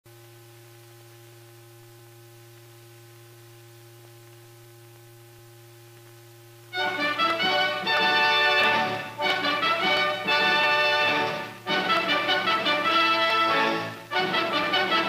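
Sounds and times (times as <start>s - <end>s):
faint steady tones: 0.1s - 15.0s
film soundtrack hiss: 0.1s - 15.0s
faint ticks: 0.2s - 6.7s.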